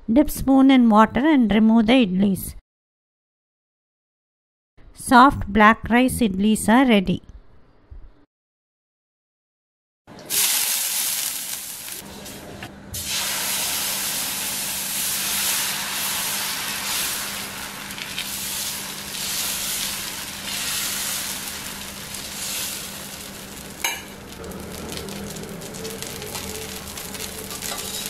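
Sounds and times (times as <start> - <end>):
batter sizzling on hot pan: 10.2 - 12.3, 13.0 - 28.0.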